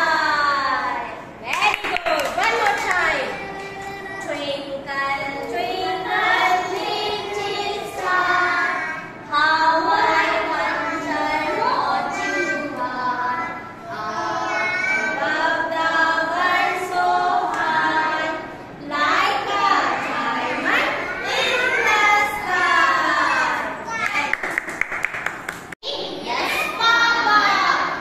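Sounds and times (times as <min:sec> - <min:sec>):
children singing together: 0:03.1 - 0:24.0, 0:26.2 - 0:28.0
woman singing along: 0:04.2 - 0:13.6.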